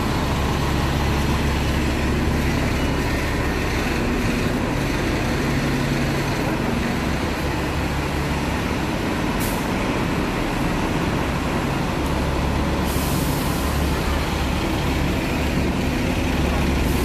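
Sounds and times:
bus diesel engines idling: 0.0s - 17.0s
air brakes hissing: 9.4s - 9.8s, 12.8s - 13.9s.

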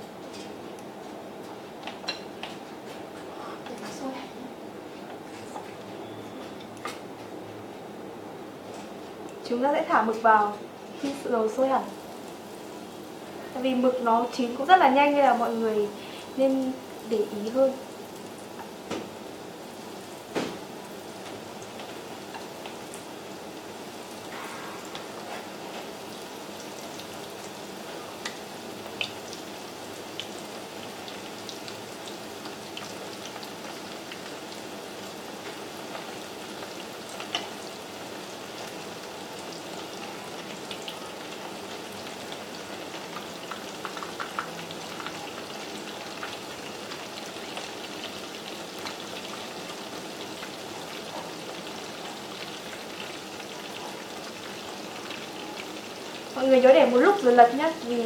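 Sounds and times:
food deep-frying in oil: 8.6s - 58.0s.

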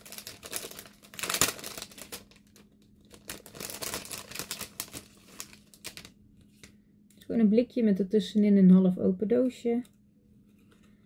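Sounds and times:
paper packaging rustling: 0.0s - 6.7s.

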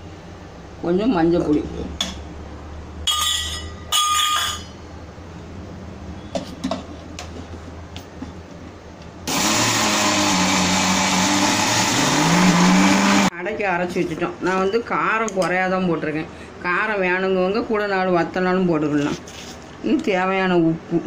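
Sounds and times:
mixer grinder running: 9.3s - 13.3s.

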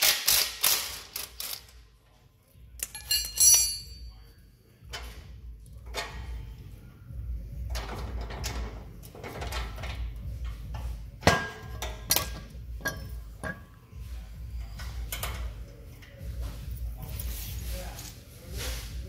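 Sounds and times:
metal parts and tools clanking: 2.7s - 6.6s, 7.6s - 17.4s.

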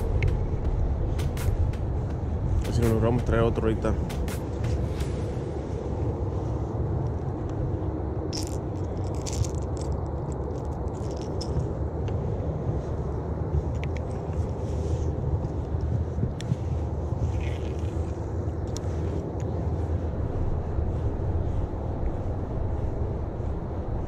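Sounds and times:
wind buffeting microphone: 0.0s - 24.0s
fishing reel clicking and rattling: 8.3s - 11.7s.

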